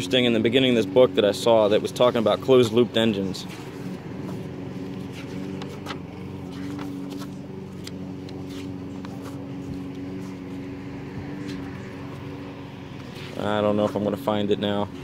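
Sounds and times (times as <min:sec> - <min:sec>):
low mechanical hum: 0:00.0 - 0:15.0
binder pages turning: 0:03.4 - 0:10.4.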